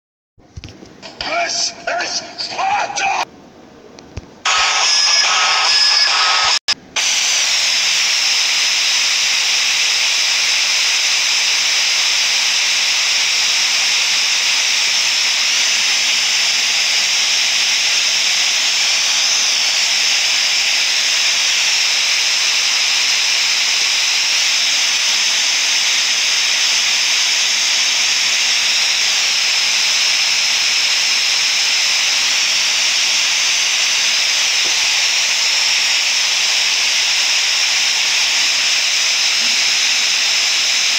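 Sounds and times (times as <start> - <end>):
static hiss: 4.4 - 7.8.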